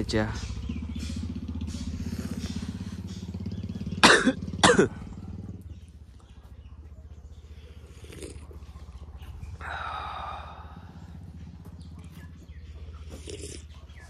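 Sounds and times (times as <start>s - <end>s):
vehicle engine idling: 0.0s - 14.0s
loud coughs: 4.0s - 5.2s.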